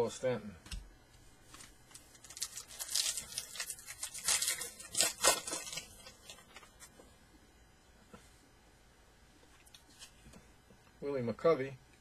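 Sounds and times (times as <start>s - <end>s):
foil wrapper tearing and crinkling: 1.9s - 6.9s.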